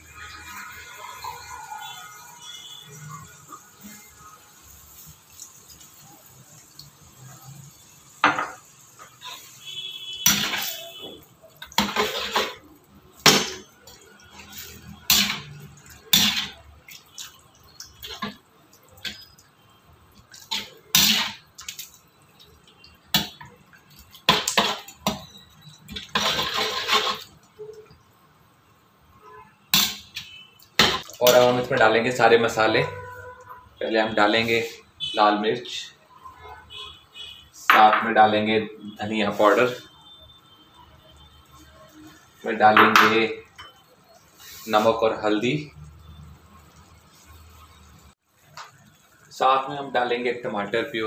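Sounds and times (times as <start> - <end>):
spatula scraping metal pan: 9.0 - 9.6, 10.2 - 16.6, 20.3 - 21.4, 24.3 - 27.4.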